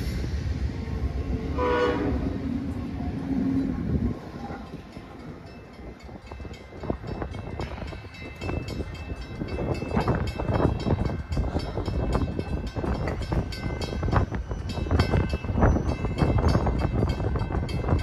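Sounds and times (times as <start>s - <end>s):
train wheels clattering on rails: 3.7s - 18.0s.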